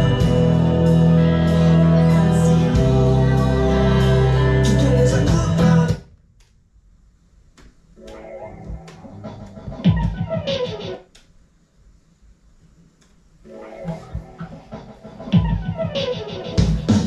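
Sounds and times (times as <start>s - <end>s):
bass guitar playing: 0.0s - 6.0s
recorded song with singing: 0.0s - 6.2s.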